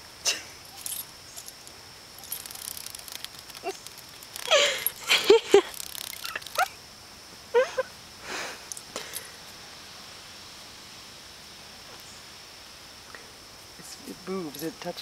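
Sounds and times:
dog whining: 6.2 - 6.7.

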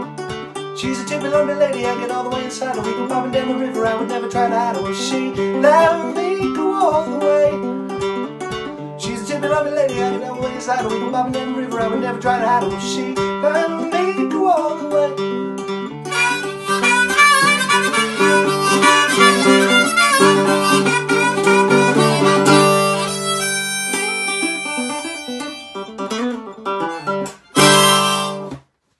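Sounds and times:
strummed ukulele: 0.0 - 28.7
harmonica playing: 16.0 - 28.6.

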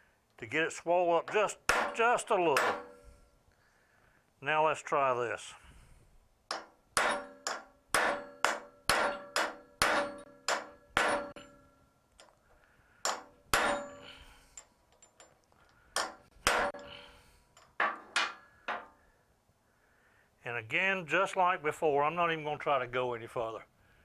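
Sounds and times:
hammer striking metal on anvil: 1.3 - 3.0, 6.5 - 11.7, 13.0 - 14.2, 16.0 - 17.1.

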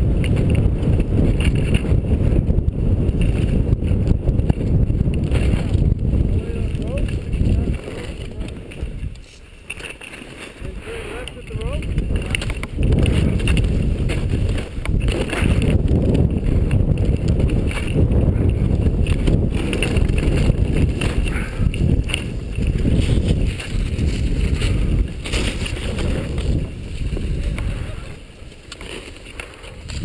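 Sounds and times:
wind buffeting microphone: 0.0 - 9.9, 10.5 - 30.0
skis scraping over snow: 0.0 - 30.0.

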